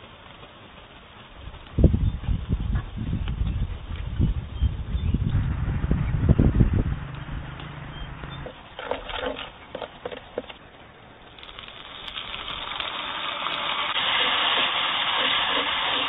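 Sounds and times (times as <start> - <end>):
food frying in a wok: 11.4 - 16.0.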